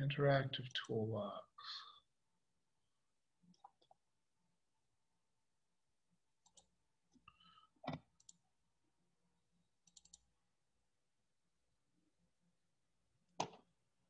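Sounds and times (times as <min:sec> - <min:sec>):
computer mouse clicks: 0:06.4 - 0:06.7, 0:07.8 - 0:08.4, 0:09.8 - 0:10.3.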